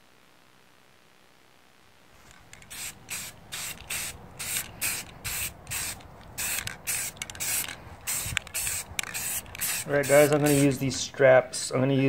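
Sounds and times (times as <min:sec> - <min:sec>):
spray can hissing in bursts: 0:02.6 - 0:10.9.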